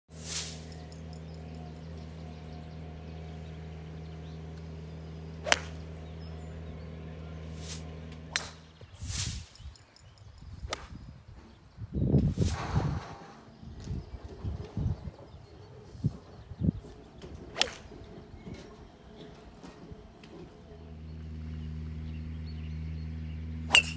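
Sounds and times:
steady motor hum: 0.1 - 23.9
golf club swing swish: 0.2 - 0.7, 5.4 - 5.8, 7.6 - 9.5, 10.7 - 11.0, 17.6 - 17.8
golf club striking ball: 3.7 - 6.7, 7.6 - 8.8, 10.7 - 11.0, 17.3 - 18.0, 23.7 - 23.9.

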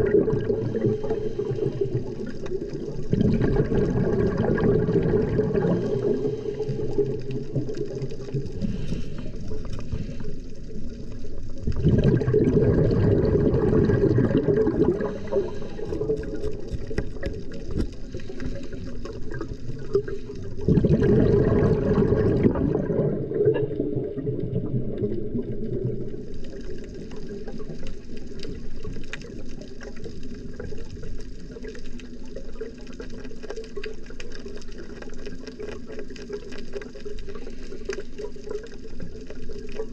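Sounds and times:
quiet hiss: 0.0 - 11.8
rushes of exhaled bubbles: 0.0 - 39.9
faint clicking: 5.1 - 11.8, 14.9 - 20.6, 23.5 - 39.9.

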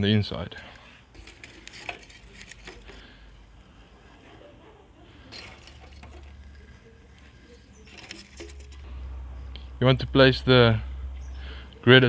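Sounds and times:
metal tongs scraping charcoal: 1.0 - 3.2, 5.3 - 8.9.

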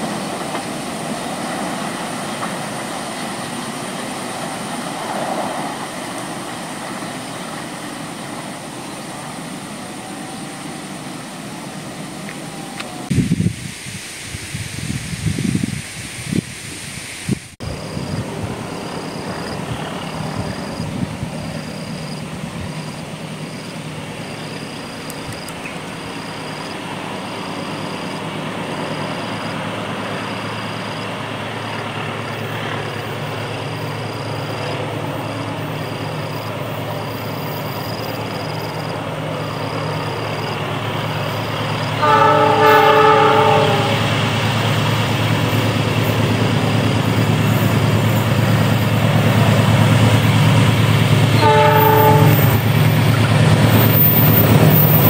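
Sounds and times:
locomotive engine drone: 0.0 - 13.4, 17.6 - 55.0
train air horn blast: 42.0 - 44.4, 51.3 - 52.8.

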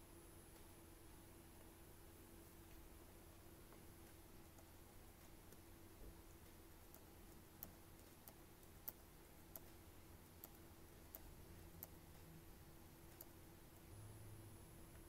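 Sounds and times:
faint steady hum: 0.0 - 15.0
computer mouse clicks: 3.7 - 12.3, 13.0 - 13.9.

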